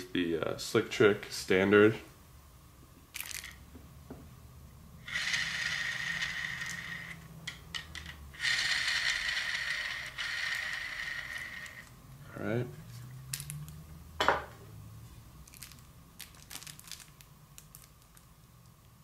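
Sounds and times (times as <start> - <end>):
arrow spinning whirring hum: 5.0 - 12.2.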